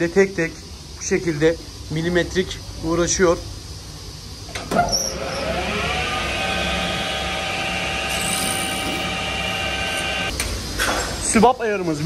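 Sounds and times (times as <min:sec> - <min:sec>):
metal lathe whining: 0:05.1 - 0:10.3.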